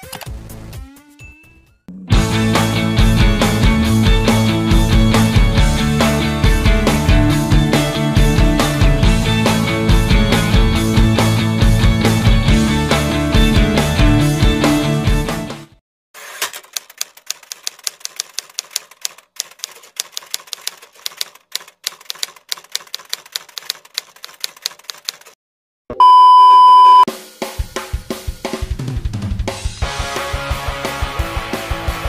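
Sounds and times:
music with drums and guitar: 2.1s - 15.7s, 27.1s - 32.0s
typewriter key clicks: 16.4s - 25.4s
loud beep: 26.0s - 27.1s.

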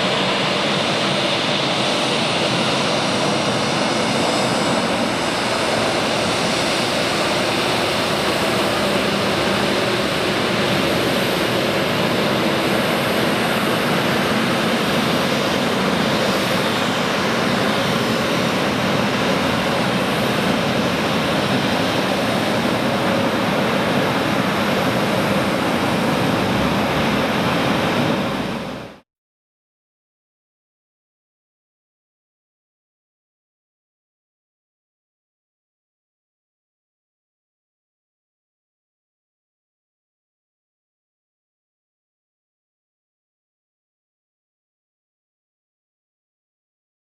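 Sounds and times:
jet engines taxiing: 0.0s - 29.0s.

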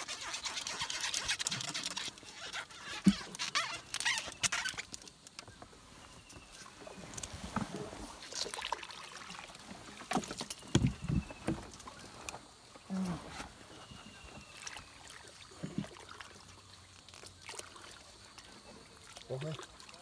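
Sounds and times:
leaves rustling: 0.0s - 18.3s
wooden boat knocking: 10.1s - 11.7s.

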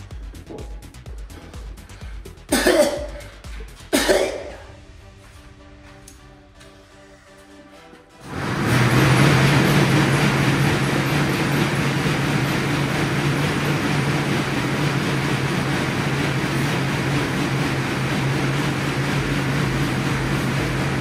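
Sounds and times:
air bike fan rushing: 0.0s - 21.0s
low hum: 0.0s - 21.0s.

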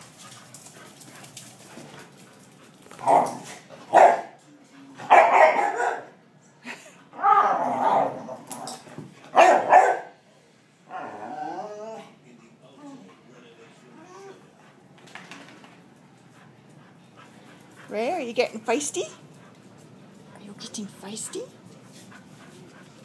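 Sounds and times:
dog barking: 3.9s - 4.4s, 5.1s - 6.2s, 9.4s - 10.2s.

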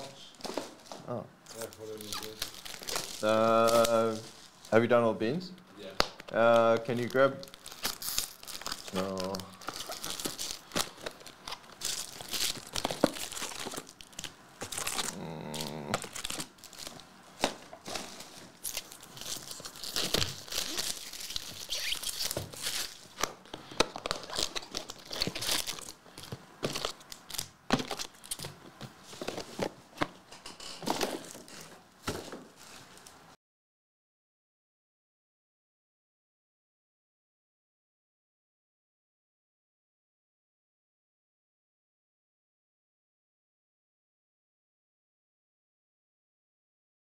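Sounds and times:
foil packs crinkling and ripping: 1.5s - 4.7s, 6.0s - 29.7s, 30.8s - 33.1s.

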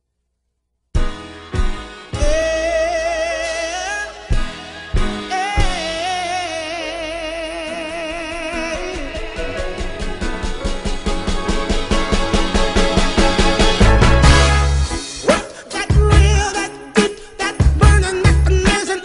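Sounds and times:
person singing: 2.1s - 10.5s, 15.2s - 19.0s.

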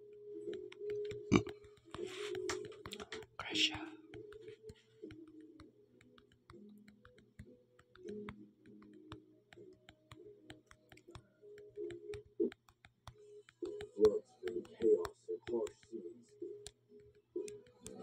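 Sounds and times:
faint irregular clicking: 0.0s - 18.0s.

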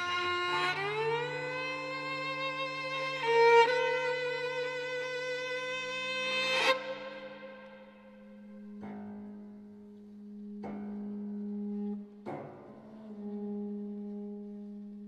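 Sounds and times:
piano strings played by hand: 6.7s - 15.0s.

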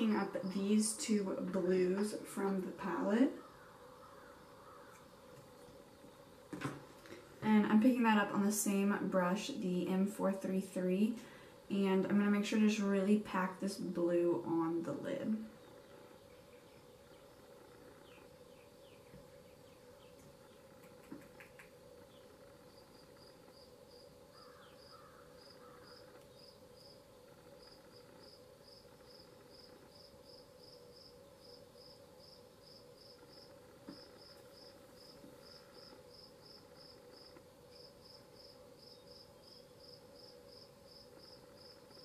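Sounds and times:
low steady hum: 0.0s - 42.0s
cricket chirping: 15.6s - 42.0s.

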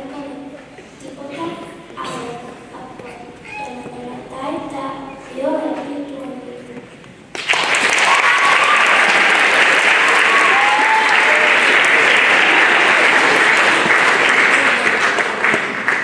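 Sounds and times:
audience applauding: 7.3s - 16.0s.

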